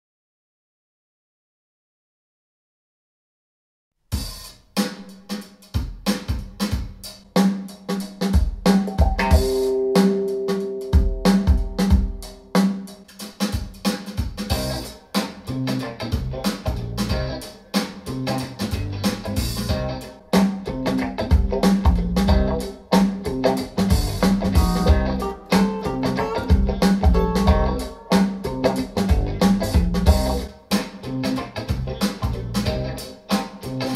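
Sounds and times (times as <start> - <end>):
drum kit beat: 4.1 - 33.9
held bass and instrument notes: 8.6 - 13.1, 14.5 - 33.9.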